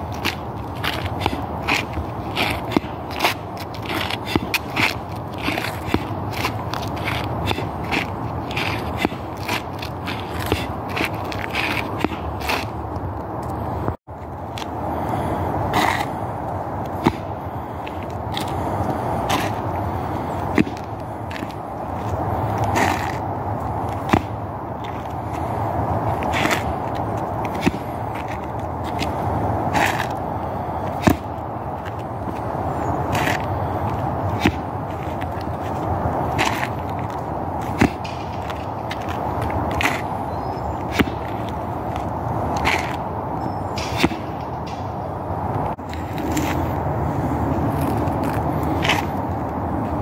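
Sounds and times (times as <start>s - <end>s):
sneakers scuffing on asphalt: 0.0s - 50.0s
sharp slap impacts: 31.0s - 31.3s, 37.7s - 39.0s, 40.9s - 41.3s, 43.7s - 45.0s.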